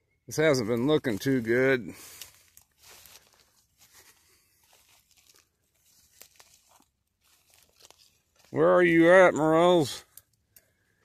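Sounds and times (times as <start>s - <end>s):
footsteps through leaf litter: 0.5s - 9.2s.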